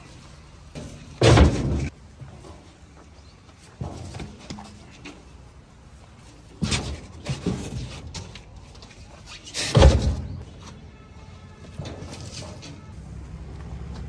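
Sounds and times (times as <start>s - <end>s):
rubber tyres thudding: 0.8s - 2.6s, 3.6s - 5.2s, 6.3s - 12.9s.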